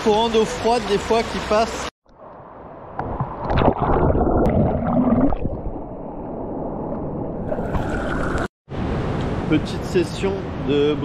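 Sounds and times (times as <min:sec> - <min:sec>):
water sloshing and gurgling: 0:02.8 - 0:08.5.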